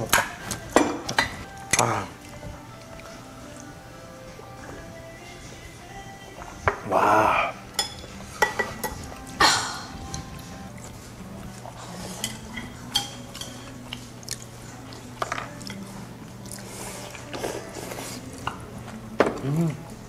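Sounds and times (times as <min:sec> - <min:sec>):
utensils clinking against dishes: 0:00.0 - 0:02.4, 0:07.6 - 0:10.9, 0:11.5 - 0:19.7
chewing: 0:00.3 - 0:03.8, 0:09.0 - 0:20.0.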